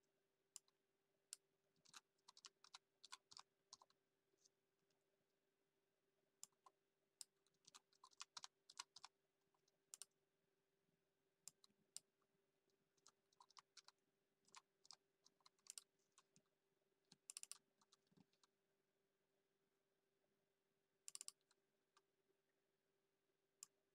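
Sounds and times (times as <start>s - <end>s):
faint keyboard typing: 1.8s - 4.5s, 6.4s - 9.1s, 13.0s - 16.4s, 17.1s - 18.5s, 21.1s - 21.6s.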